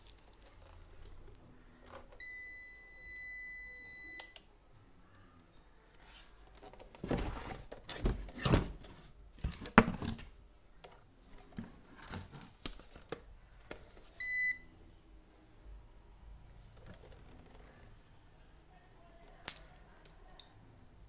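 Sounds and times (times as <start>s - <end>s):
device being handled rustling: 0.0s - 2.0s.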